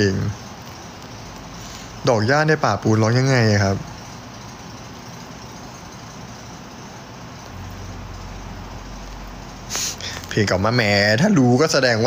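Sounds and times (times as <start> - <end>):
low steady hum: 0.0 - 12.0
steady background noise: 0.0 - 12.0
brief hiss: 9.7 - 10.3.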